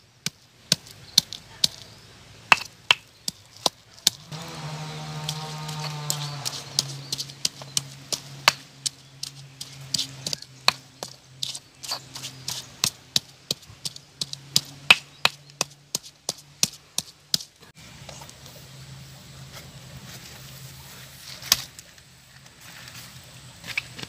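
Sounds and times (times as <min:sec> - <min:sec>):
stone pestle pounding in mortar: 0:02.5 - 0:04.3, 0:05.2 - 0:17.5.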